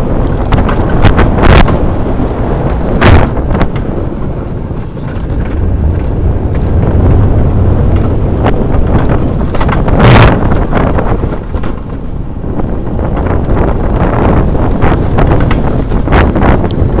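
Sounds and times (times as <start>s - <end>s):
sled rumbling and rattling on rails: 0.0s - 17.0s
wind buffeting microphone: 0.0s - 17.0s.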